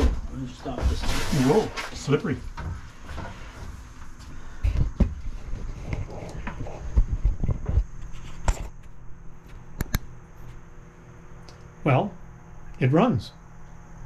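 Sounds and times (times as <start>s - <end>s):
low steady hum: 0.0s - 14.0s
footsteps on wooden steps: 2.5s - 5.7s.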